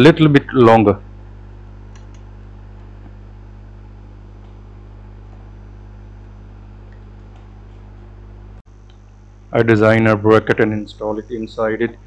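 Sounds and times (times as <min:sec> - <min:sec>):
low electrical hum: 0:00.0 - 0:12.0
faint clicks: 0:01.9 - 0:02.3.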